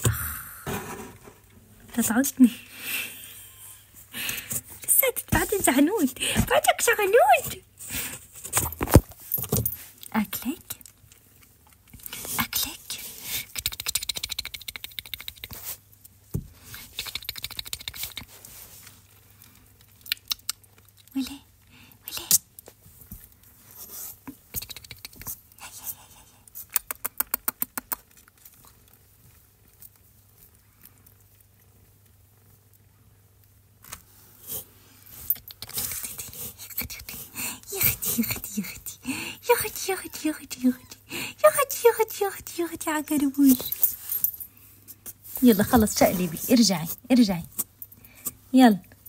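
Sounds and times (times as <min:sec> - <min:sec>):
kitten scratching in cardboard box: 0:12.1 - 0:15.9, 0:16.6 - 0:19.1, 0:34.1 - 0:38.9.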